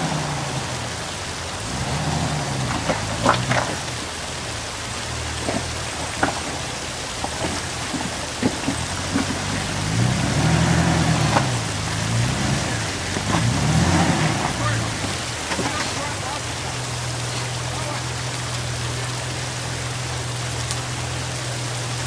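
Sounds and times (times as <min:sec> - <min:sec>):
off-road engine revving: 0:00.0 - 0:22.0
sharp knocks and clunks: 0:05.4 - 0:09.8.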